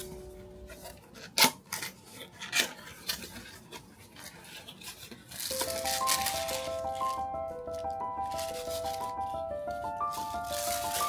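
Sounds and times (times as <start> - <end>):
cardboard clicks and scrapes: 0.7 - 6.3.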